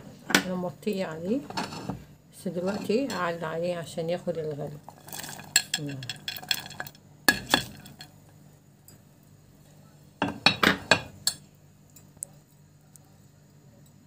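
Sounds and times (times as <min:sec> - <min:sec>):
kitchenware clinking on a pot: 0:05.2 - 0:08.1, 0:10.2 - 0:11.4.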